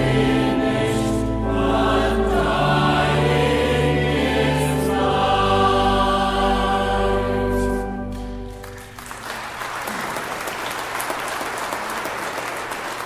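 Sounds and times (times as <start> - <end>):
choir singing a hymn: 0.0 - 8.6
audience applause: 8.5 - 13.0.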